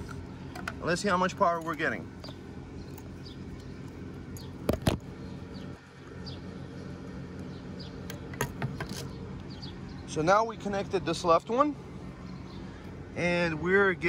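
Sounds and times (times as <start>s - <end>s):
steady low hum: 0.0s - 14.0s
faint bird chirps: 12.2s - 13.0s.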